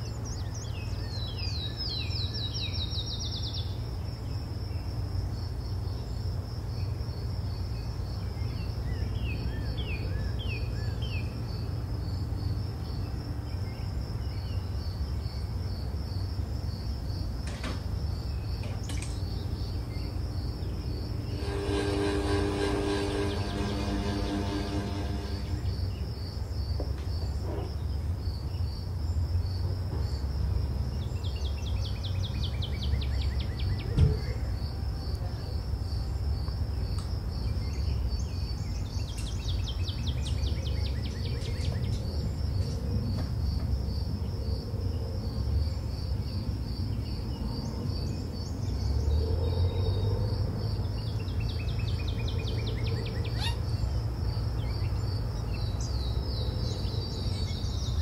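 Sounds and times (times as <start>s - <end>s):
crickets chirping: 0.0s - 58.0s
descending bird trill: 21.1s - 26.0s.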